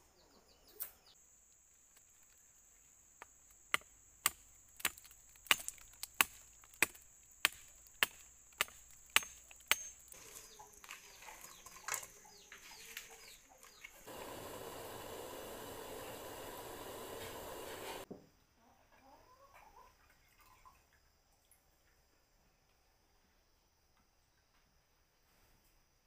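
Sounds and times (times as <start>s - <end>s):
machete chopping tree trunk: 3.7s - 10.2s.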